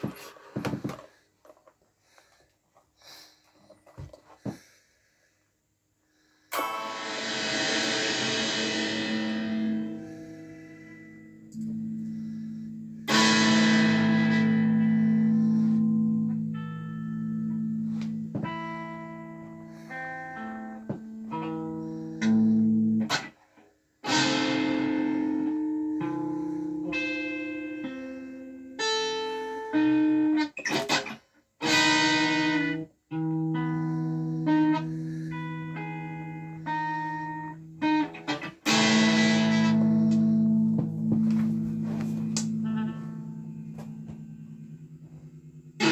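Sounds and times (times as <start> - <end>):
electric guitar notes and chords: 6.5 - 23.4, 24.0 - 45.9.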